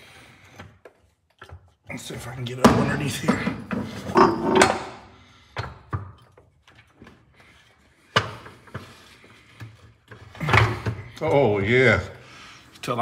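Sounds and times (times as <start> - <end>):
metal knocks and clunks: 2.5 - 5.0.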